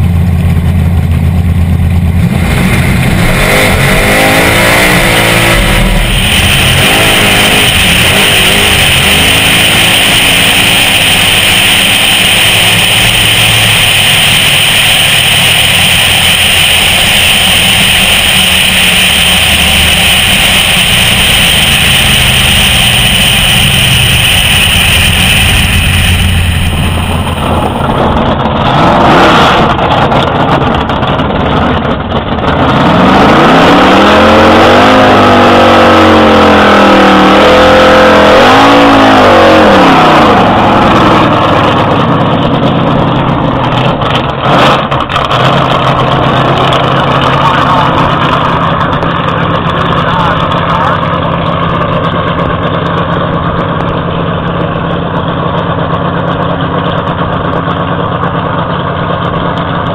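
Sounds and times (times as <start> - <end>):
race car engine at full throttle: 0.0 - 59.9
wind rushing over microphone: 18.4 - 30.7.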